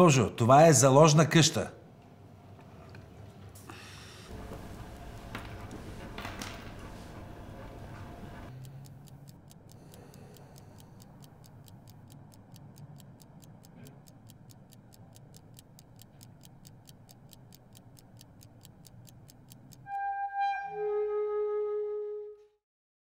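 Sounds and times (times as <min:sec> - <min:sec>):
pocket watch ticking: 0:08.5 - 0:20.0.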